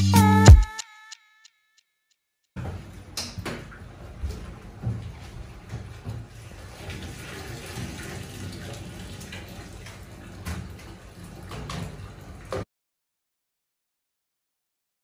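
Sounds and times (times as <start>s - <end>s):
tap water running into sink: 6.3s - 12.6s.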